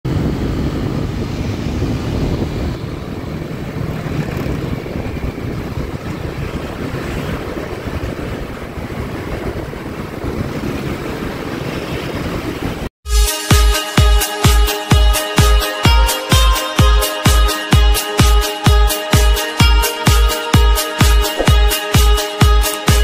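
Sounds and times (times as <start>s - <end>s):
road traffic rumble: 0.1s - 12.9s.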